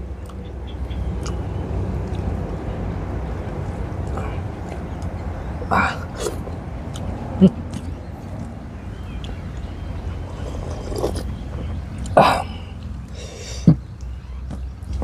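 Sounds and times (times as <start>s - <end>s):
steady low rumble: 0.0s - 15.0s
chewing mouth noises: 1.1s - 1.4s, 5.9s - 13.2s
slurping broth: 10.3s - 11.3s.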